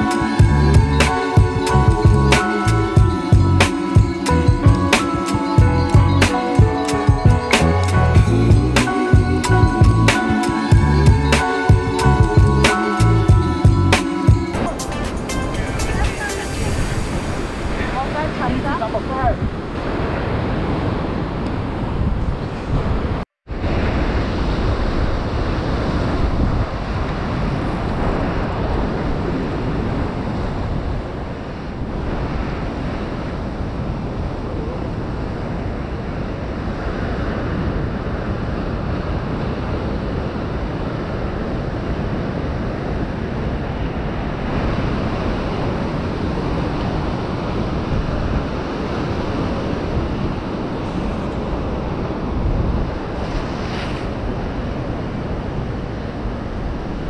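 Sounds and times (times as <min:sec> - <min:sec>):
wind buffeting microphone: 0:13.3 - 0:57.0
ocean surf breaking: 0:14.0 - 0:57.0.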